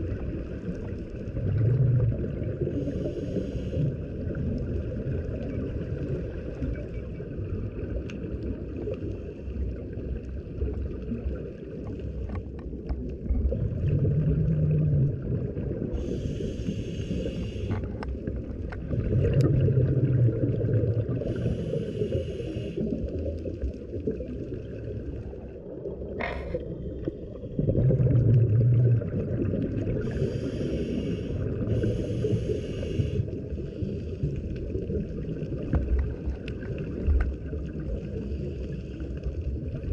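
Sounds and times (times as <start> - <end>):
low underwater rumble: 0.0 - 39.9
diver breathing through regulator: 2.6 - 4.1, 15.9 - 18.1, 21.1 - 23.0, 26.2 - 27.2, 29.9 - 34.5
bubbling exhale: 13.4 - 23.6, 26.1 - 35.3.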